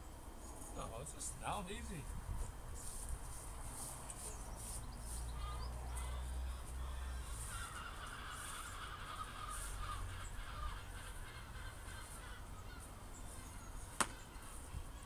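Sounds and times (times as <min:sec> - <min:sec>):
bird calls: 0:03.7 - 0:15.0.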